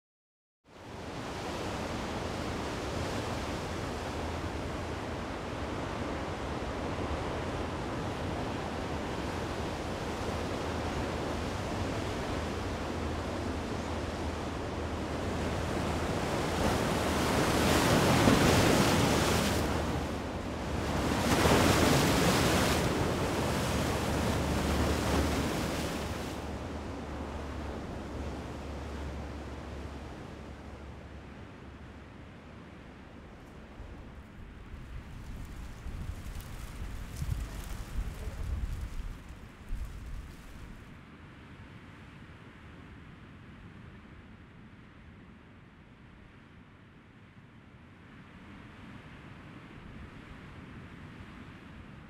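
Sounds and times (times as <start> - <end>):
wind rumble on microphone: 0.8 - 41.0
surf breaking on rocks: 15.5 - 29.6, 34.7 - 40.8.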